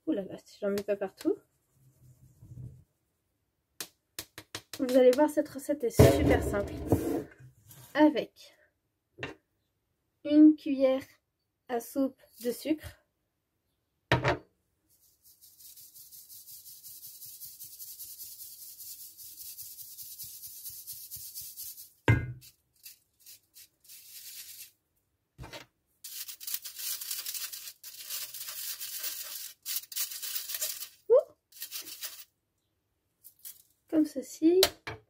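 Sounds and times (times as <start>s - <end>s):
loud thumps: 6.0s - 7.2s
flour sifting through sieve: 14.9s - 24.8s, 26.0s - 32.3s.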